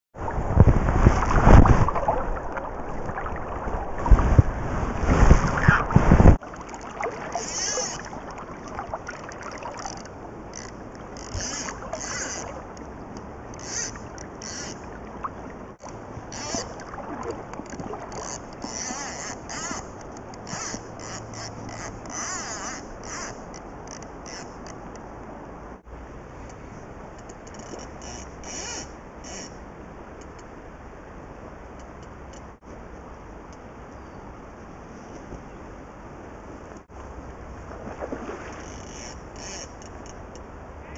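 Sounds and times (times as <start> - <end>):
wind buffeting microphone: 0.2 - 10.4
river water lapping: 0.2 - 25.4, 34.4 - 40.9
fishing reel ratchet buzzing: 9.8 - 12.5, 18.2 - 23.4, 38.6 - 40.0.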